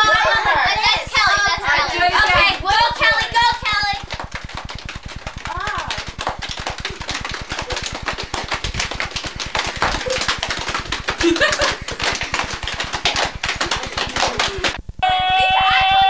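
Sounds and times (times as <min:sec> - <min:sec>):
girls' voices: 0:00.0 - 0:04.2, 0:05.4 - 0:06.1, 0:13.5 - 0:14.8
hands slapping a rapid beat: 0:01.1 - 0:14.8.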